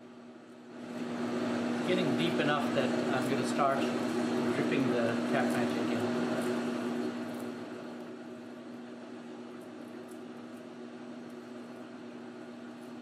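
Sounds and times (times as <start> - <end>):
metal lathe running: 0.8 - 8.4.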